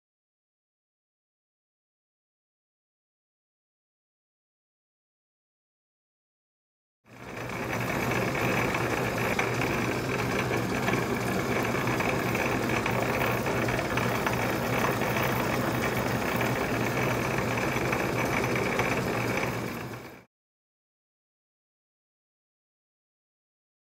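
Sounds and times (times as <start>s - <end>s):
lathe tool cutting metal: 7.1s - 20.2s
metal lathe humming: 7.1s - 20.2s.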